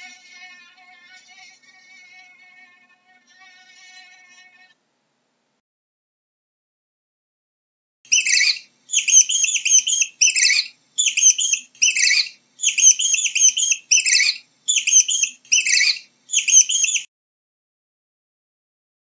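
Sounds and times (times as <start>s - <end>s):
animal chirping: 8.1s - 17.1s.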